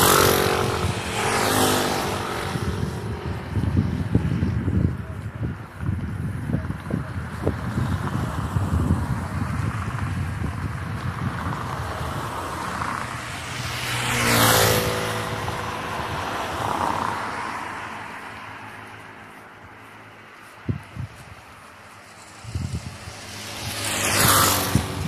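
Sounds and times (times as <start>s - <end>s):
faint car passing: 0.0s - 25.0s
wind rumble on microphone: 0.0s - 25.0s.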